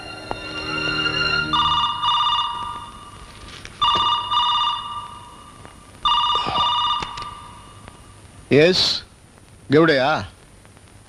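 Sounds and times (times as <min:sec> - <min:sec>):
music cue: 0:00.0 - 0:03.3
telephone ringing: 0:00.7 - 0:07.9.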